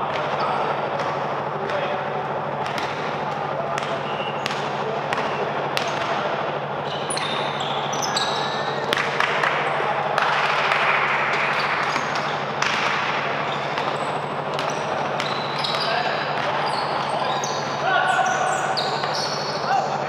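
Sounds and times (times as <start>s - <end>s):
players' voices: 0.0s - 20.0s
shoes squeaking: 6.8s - 8.9s, 13.3s - 20.0s
basketball bouncing on court: 11.3s - 17.1s.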